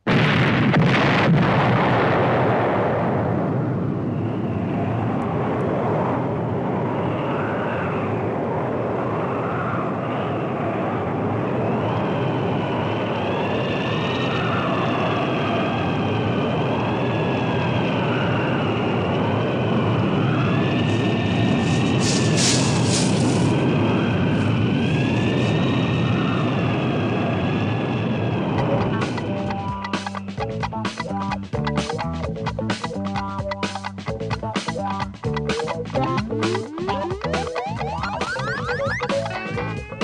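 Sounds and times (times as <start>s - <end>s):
explosion blast and rumble: 0.0s - 6.9s, 18.8s - 29.6s
wavering whistle-like tones: 35.6s - 40.0s.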